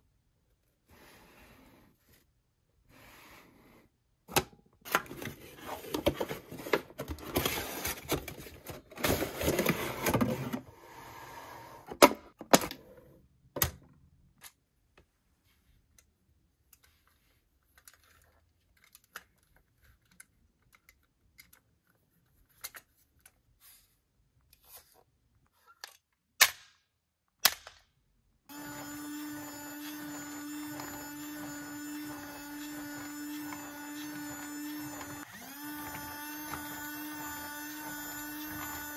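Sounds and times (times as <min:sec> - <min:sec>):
small electric motor whirring: 0:28.5 - 0:38.9.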